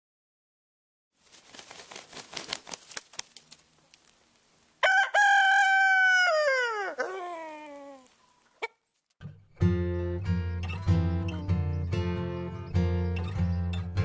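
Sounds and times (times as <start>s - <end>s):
scratchy rustling: 1.2s - 4.2s
rooster crowing: 4.8s - 8.7s.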